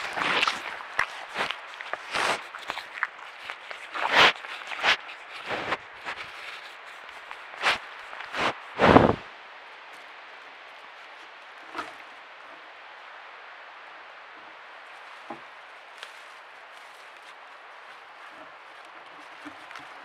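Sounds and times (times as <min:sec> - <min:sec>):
loud noises at microphone: 0:00.0 - 0:09.3.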